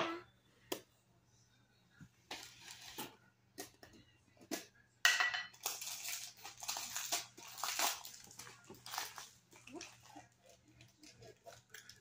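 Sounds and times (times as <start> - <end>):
slime crackling and crunching: 5.6 - 9.4.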